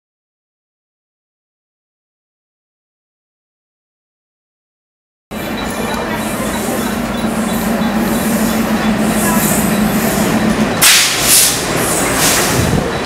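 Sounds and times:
train brakes hissing and squealing: 0:05.3 - 0:13.0
train rail noise: 0:05.3 - 0:13.0.

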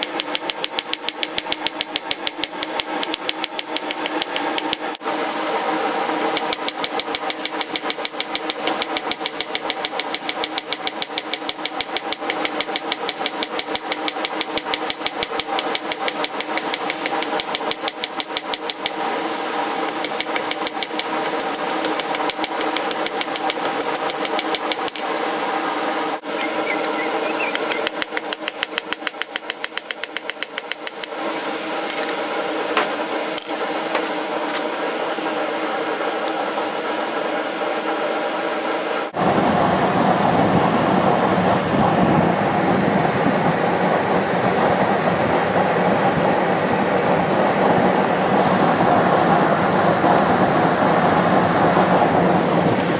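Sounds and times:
hammer striking steel on anvil: 0:00.0 - 0:05.0, 0:06.2 - 0:19.0, 0:19.9 - 0:25.1.

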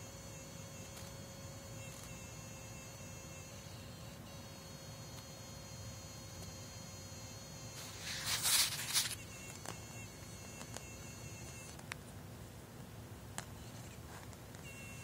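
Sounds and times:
faint high-pitched whine: 0:00.0 - 0:15.0
handling rustle: 0:07.8 - 0:09.2.

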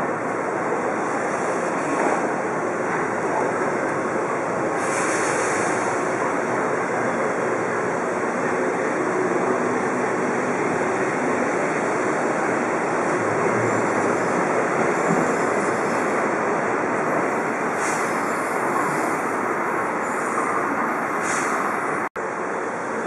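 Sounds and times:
metro train accelerating away: 0:00.0 - 0:23.0
air hiss: 0:04.8 - 0:06.0, 0:17.6 - 0:19.2, 0:21.2 - 0:21.8.

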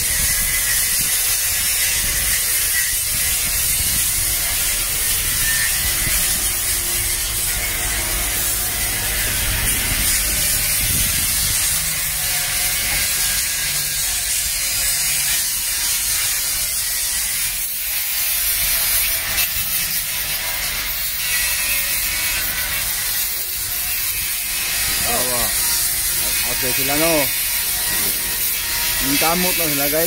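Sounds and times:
power tool rattling on steel: 0:24.7 - 0:30.0.

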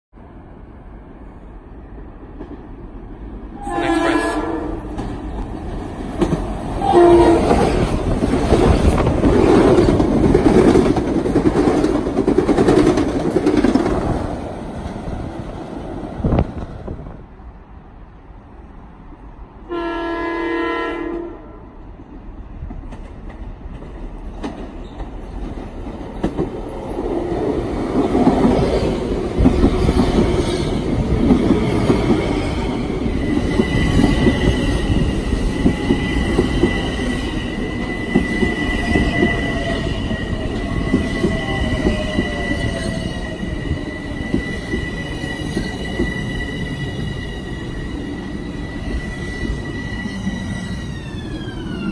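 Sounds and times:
train wheels rumbling on rail: 0:00.3 - 0:51.9
train horn blast: 0:03.6 - 0:05.0, 0:06.8 - 0:07.8, 0:19.7 - 0:21.7
high-pitched squeal: 0:36.0 - 0:51.9.

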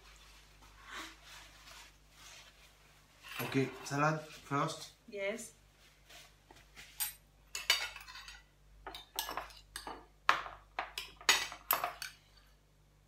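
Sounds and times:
cutlery clinking on ceramic plates: 0:07.0 - 0:12.6.

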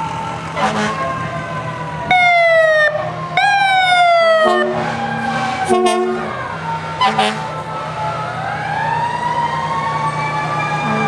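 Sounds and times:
diesel engine rumbling: 0:00.0 - 0:11.0
fire engine horn blasts: 0:00.6 - 0:01.4, 0:04.2 - 0:07.7
low steady warning tone: 0:10.7 - 0:11.0.

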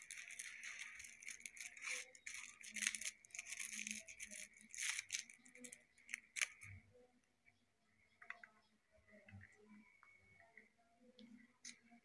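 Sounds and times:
wrapper crinkling: 0:00.0 - 0:06.7.

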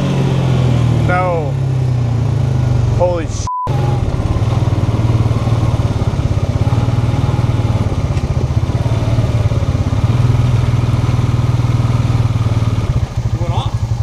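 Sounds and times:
atv engine running: 0:00.0 - 0:14.0.

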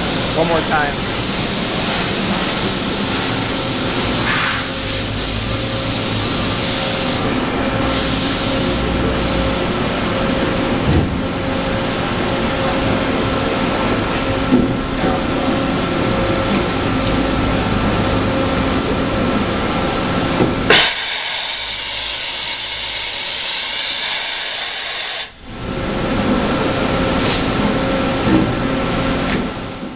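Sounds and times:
boring mill drone with whine: 0:00.0 - 0:29.9
sharp machine clack: 0:03.0 - 0:04.8.

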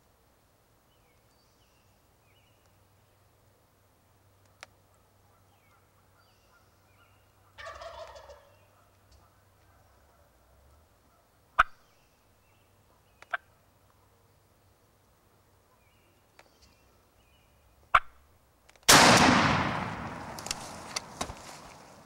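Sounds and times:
turkey gobbling: 0:07.4 - 0:10.4.

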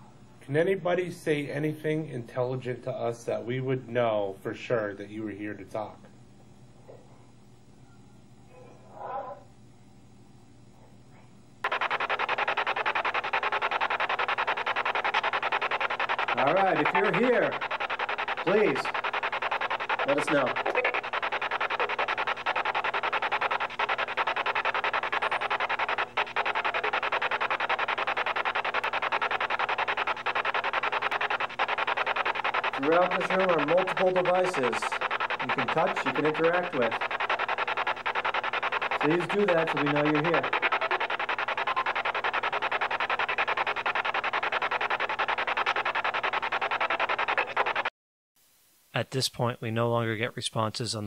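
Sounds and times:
faint steady hum: 0:00.0 - 0:36.0
chopped rasping radio static: 0:11.6 - 0:47.9.

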